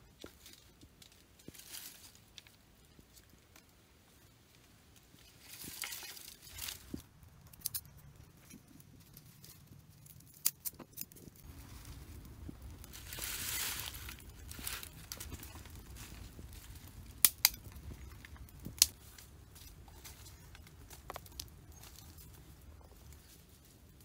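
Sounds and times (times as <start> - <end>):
fire crackling and popping: 0.0 - 24.0
rushing hiss of flames: 11.4 - 21.4.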